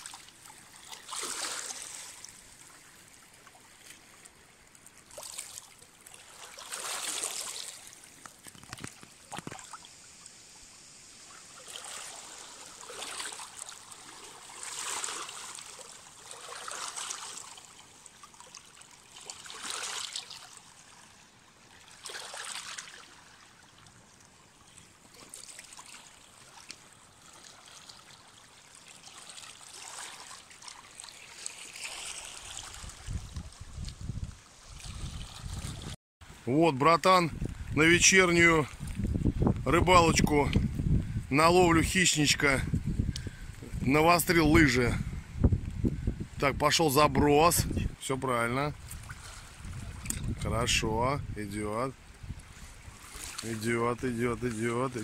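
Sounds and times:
small waves lapping on stones: 0:00.0 - 0:10.3, 0:11.2 - 0:36.0, 0:48.8 - 0:50.5, 0:52.4 - 0:55.0.

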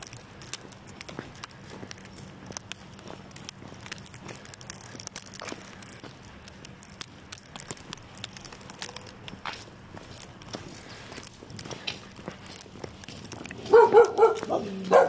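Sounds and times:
footsteps on snow: 0:09.3 - 0:15.0.

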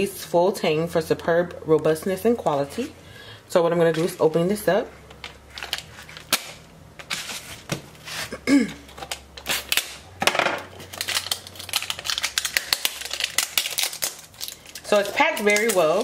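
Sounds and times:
plastic wrap crinkling: 0:05.2 - 0:10.0, 0:10.6 - 0:16.0.

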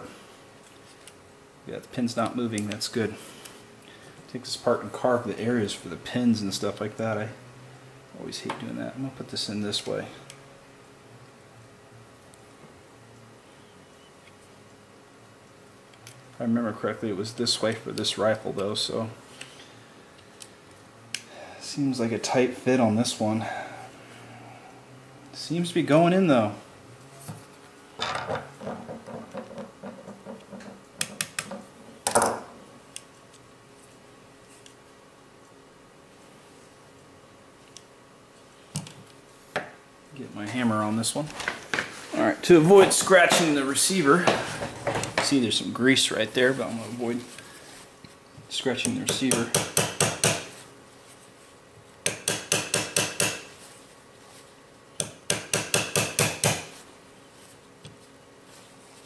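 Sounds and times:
small hammer tapping metal: 0:52.0 - 0:53.4, 0:55.0 - 0:56.6.

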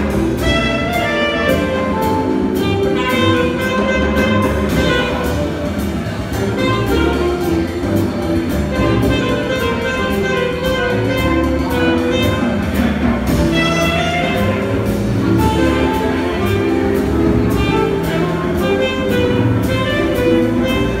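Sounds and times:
horn melody: 0:00.0 - 0:21.0
live jazz combo: 0:00.0 - 0:21.0
steady cymbal beat: 0:00.0 - 0:21.0.

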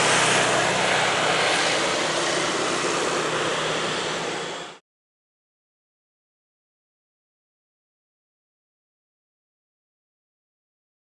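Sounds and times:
helicopter engine and rotor: 0:00.0 - 0:04.8.

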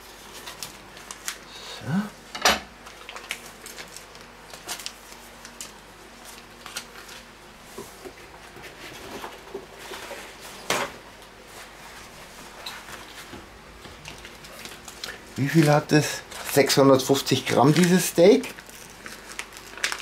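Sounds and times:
plastic packaging rustling: 0:00.1 - 0:01.5, 0:02.8 - 0:10.7, 0:13.9 - 0:20.0.

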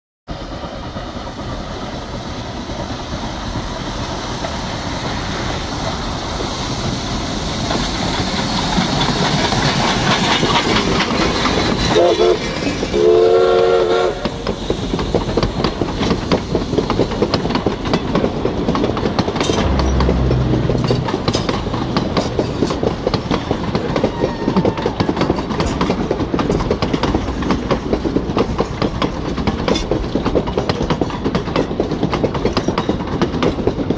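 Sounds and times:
steam train passing: 0:00.3 - 0:33.9
wheels clacking over rail joints: 0:06.8 - 0:12.9, 0:21.1 - 0:33.9
steam whistle blasts: 0:13.0 - 0:14.3.

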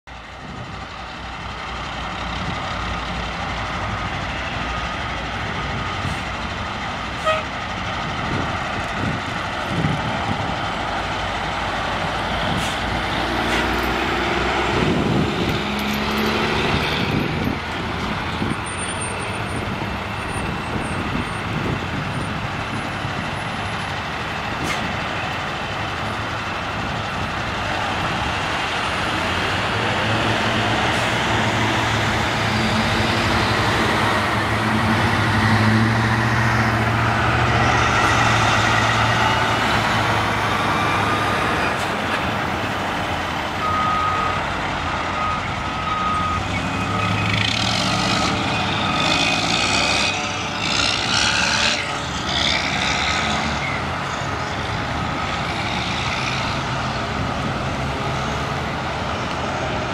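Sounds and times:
diesel truck engines idling: 0:00.1 - 0:51.1, 0:51.9 - 0:59.9
reversing alarm beeping: 0:43.6 - 0:49.4.

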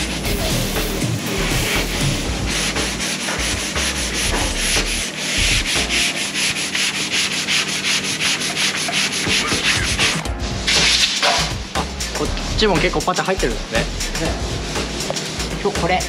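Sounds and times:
sandpaper scraping: 0:00.0 - 0:11.3.

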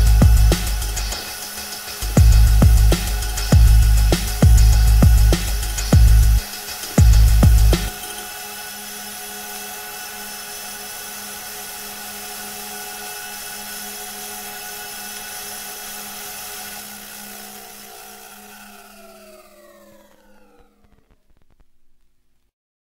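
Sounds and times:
sustained electronic drone: 0:00.0 - 0:21.6.

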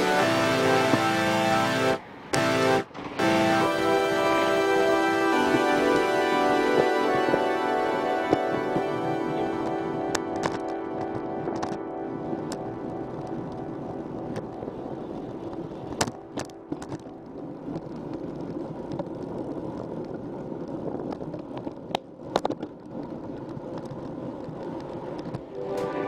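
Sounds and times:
tyres rumbling over pavement: 0:00.0 - 0:10.4, 0:11.0 - 0:26.0
wind buffeting microphone: 0:02.0 - 0:22.0
sharp clicks and rattles: 0:09.6 - 0:11.8, 0:15.5 - 0:25.5.

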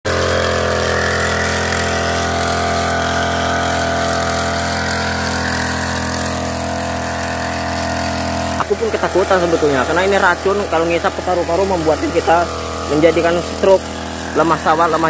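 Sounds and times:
small petrol engine running: 0:00.1 - 0:15.0
sprayer lance spraying mist: 0:00.1 - 0:15.0.

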